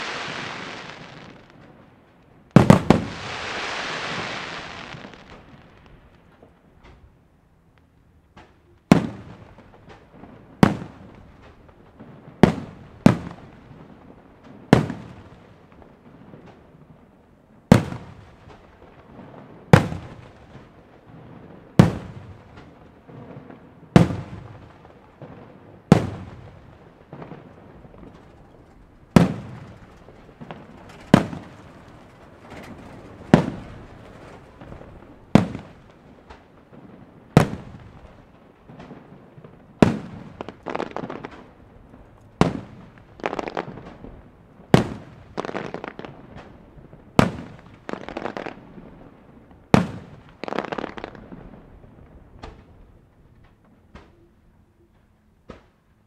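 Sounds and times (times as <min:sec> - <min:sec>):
firework shells bursting: 0:25.9 - 0:39.0.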